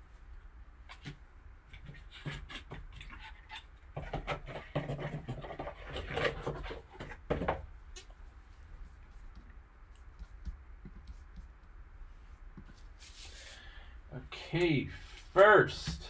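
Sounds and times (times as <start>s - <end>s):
box scraping and knocking on table: 4.0s - 7.6s.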